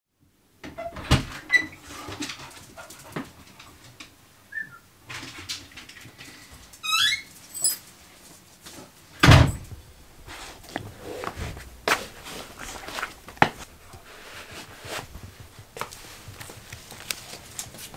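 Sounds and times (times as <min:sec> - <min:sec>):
door opening: 0:06.8 - 0:07.8, 0:09.2 - 0:10.0
footsteps: 0:07.5 - 0:17.9.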